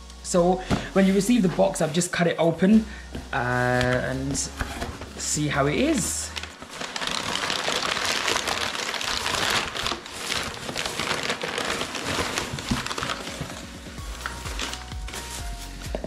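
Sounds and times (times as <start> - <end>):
packing paper rustling: 0.6 - 2.2, 3.2 - 16.0
plastic bag crinkling: 5.6 - 16.0.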